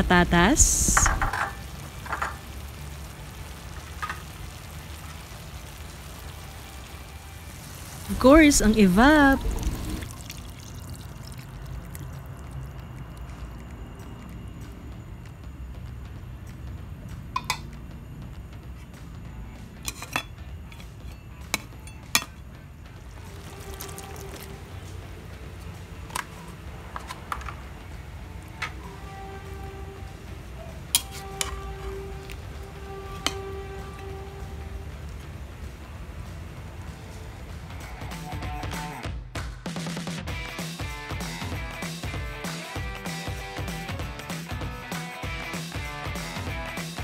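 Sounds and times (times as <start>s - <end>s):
food sizzling in a frying pan: 0.1s - 13.5s, 23.2s - 25.1s
metal spatula clinking on pan: 19.8s - 21.0s
utensil clinks or scrapes: 19.8s - 22.1s, 31.0s - 31.6s.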